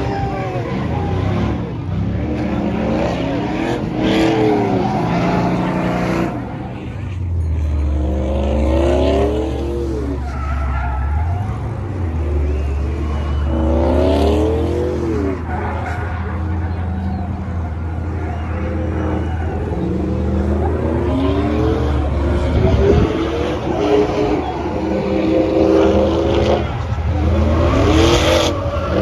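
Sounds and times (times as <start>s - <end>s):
truck engine revving: 0.0s - 29.0s.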